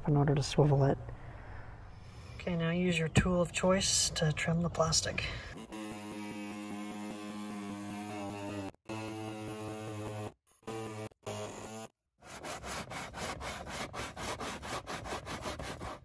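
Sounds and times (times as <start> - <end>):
hand saw cutting plastic: 5.6 - 16.0.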